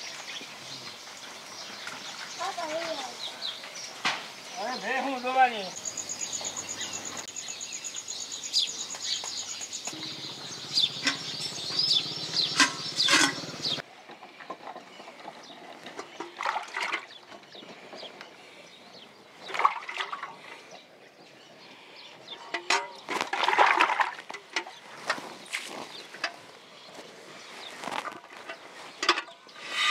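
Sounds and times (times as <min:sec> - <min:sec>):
birds chirping: 0:00.0 - 0:23.3, 0:24.4 - 0:29.9
high rapid bird trill: 0:05.5 - 0:13.8
water buffalo slurping water: 0:10.0 - 0:18.1, 0:23.0 - 0:26.1.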